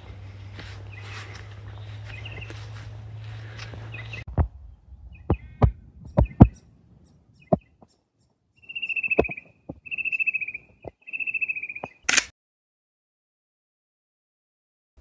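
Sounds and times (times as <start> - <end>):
cuckoo trilling call: 5.1 - 8.0, 8.6 - 12.0
sharp clicks and knocks: 5.2 - 6.6.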